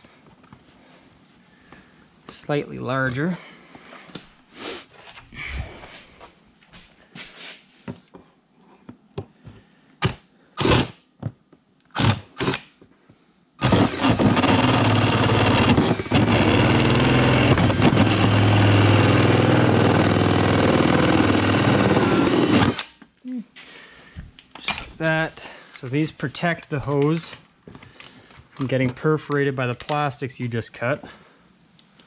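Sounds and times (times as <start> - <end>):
cordless drill grinding through plastic: 10.6 - 11.0, 12.0 - 12.6, 13.6 - 22.9.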